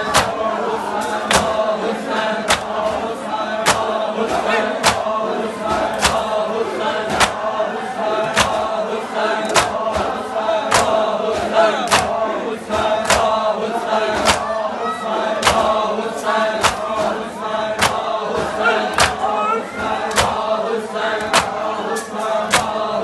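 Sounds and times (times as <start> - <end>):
crowd of men chanting in unison: 0.0 - 23.0
hands slapping chests: 0.1 - 0.4, 1.3 - 1.6, 2.4 - 2.9, 3.6 - 4.0, 4.8 - 5.1, 5.9 - 6.3, 7.1 - 7.4, 8.3 - 8.7, 9.4 - 10.0, 10.7 - 11.1, 11.8 - 12.2, 12.8 - 13.4, 14.2 - 14.5, 15.4 - 15.8, 16.6 - 17.2, 17.8 - 19.3, 20.0 - 20.5, 21.2 - 22.8.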